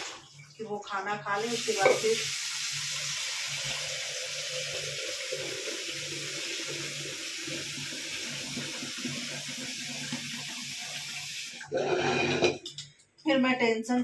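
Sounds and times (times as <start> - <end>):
tap water splashing into metal pot: 0.0 - 2.5
pot being scrubbed: 11.7 - 12.6.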